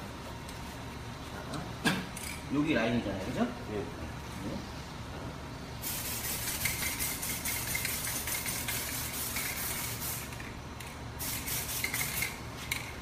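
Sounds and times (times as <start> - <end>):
aerosol can spraying hiss: 5.8 - 10.4, 11.2 - 12.2.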